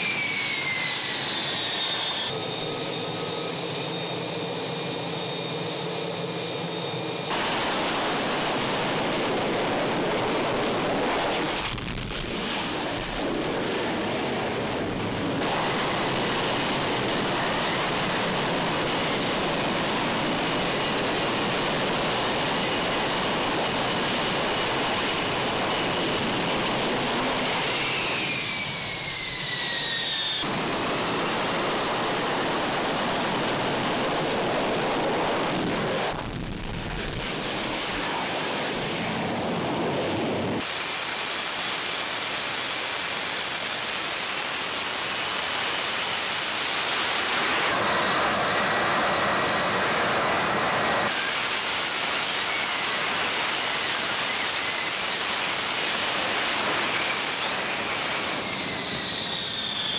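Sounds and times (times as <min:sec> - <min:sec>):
jet engine roaring: 0:00.0 - 0:59.9.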